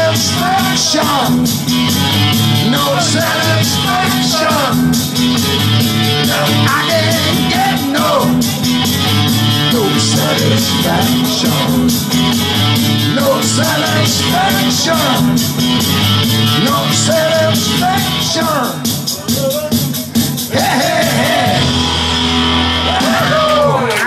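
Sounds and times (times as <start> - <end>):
man singing into a microphone: 0.0 - 1.5, 2.6 - 5.0, 6.2 - 8.6, 9.6 - 12.0, 13.0 - 15.4, 16.4 - 21.6
rock and roll music: 0.0 - 24.0.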